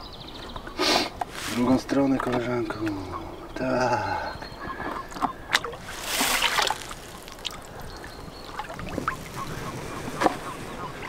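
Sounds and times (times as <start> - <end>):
water splashing and trickling: 5.2 - 11.0.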